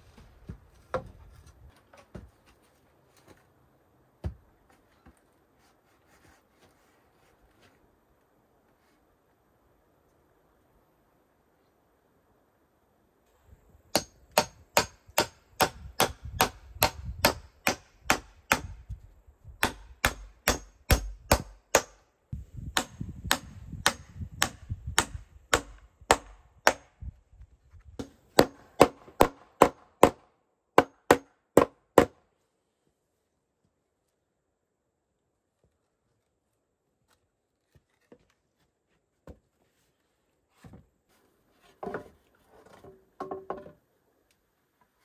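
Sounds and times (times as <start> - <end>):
hammer driving nails into wood: 13.9 - 18.8, 19.6 - 22.0.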